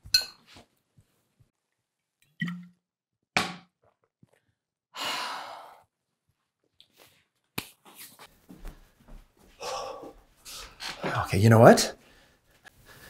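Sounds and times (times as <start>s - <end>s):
soft footsteps: 7.9s - 11.3s.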